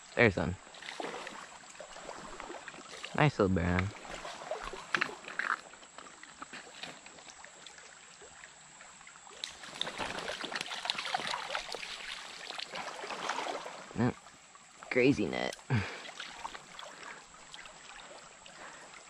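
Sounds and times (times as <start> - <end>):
fish splashing in water: 9.3 - 13.9.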